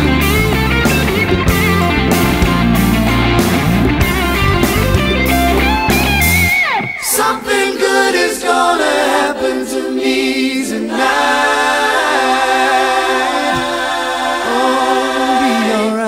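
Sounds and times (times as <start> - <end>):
rock band playing: 0.0 - 7.1
layered vocal harmonies: 6.8 - 16.0.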